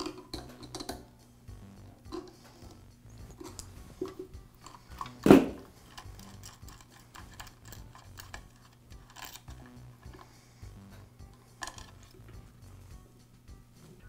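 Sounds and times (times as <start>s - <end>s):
small clicks of parts handled: 3.4s - 10.3s, 11.6s - 12.2s.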